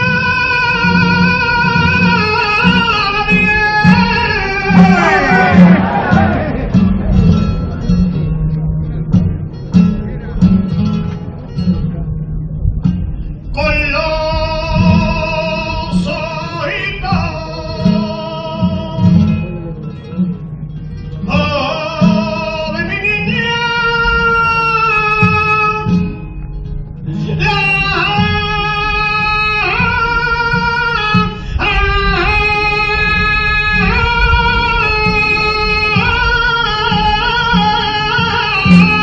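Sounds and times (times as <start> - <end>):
man singing melismatic lines: 0.0 - 7.5, 13.4 - 19.5, 21.2 - 26.2, 27.1 - 39.0
flamenco guitar: 0.0 - 39.0.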